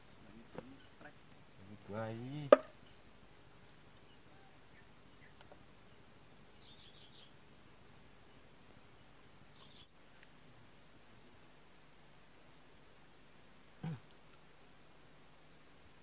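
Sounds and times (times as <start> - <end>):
insect chirping: 0.0 - 16.0.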